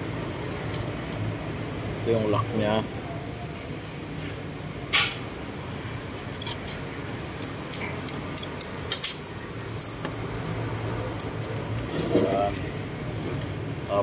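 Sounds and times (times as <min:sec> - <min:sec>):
sharp metal clink: 0:07.4 - 0:11.6
thin high squeal: 0:09.0 - 0:11.1.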